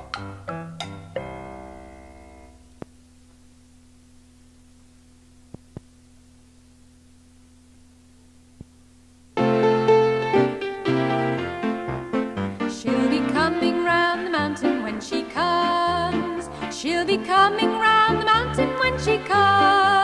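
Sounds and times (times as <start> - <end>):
low steady hum: 0.0 - 20.0
faint clicks: 4.1 - 6.8
children's song: 12.6 - 20.0.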